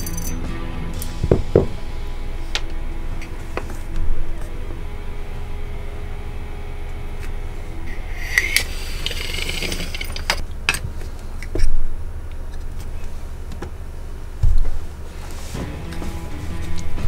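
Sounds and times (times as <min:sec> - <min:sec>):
metallic jingling rattle: 0:00.0 - 0:01.2
steady low hum: 0:00.0 - 0:17.0
loud low thump: 0:01.2 - 0:01.8.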